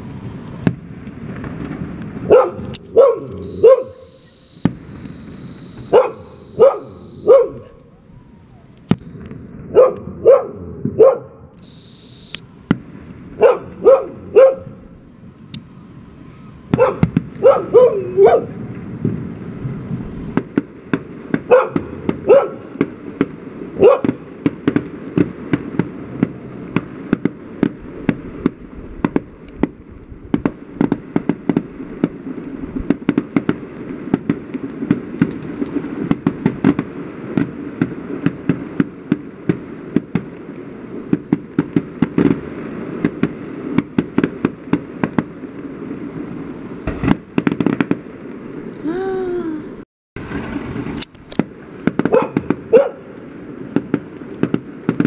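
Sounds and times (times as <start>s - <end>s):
fireworks banging and crackling: 0.0s - 48.8s, 50.2s - 55.0s
dog barking: 2.3s - 4.1s, 5.9s - 7.8s, 9.7s - 11.4s, 13.4s - 14.8s, 16.8s - 18.5s, 21.5s - 22.6s, 23.8s - 24.2s, 52.1s - 53.1s.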